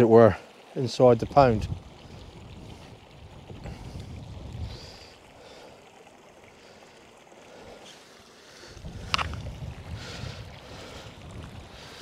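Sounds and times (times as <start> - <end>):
stream trickling: 0.0 - 12.0
wind buffeting microphone: 1.2 - 5.4, 8.6 - 12.0.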